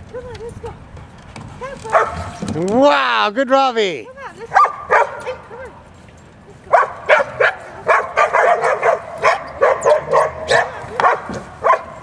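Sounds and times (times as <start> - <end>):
dog yapping: 1.9 - 2.4, 4.5 - 5.4, 6.7 - 12.0.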